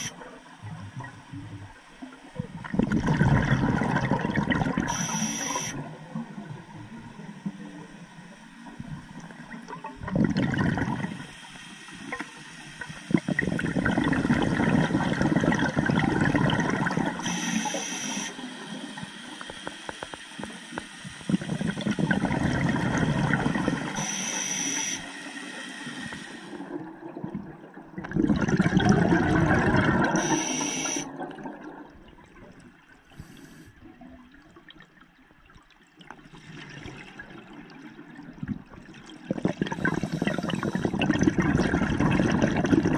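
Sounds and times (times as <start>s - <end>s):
underwater bubbling: 0.0s - 42.9s
short high hiss: 17.2s - 18.4s, 30.2s - 31.1s.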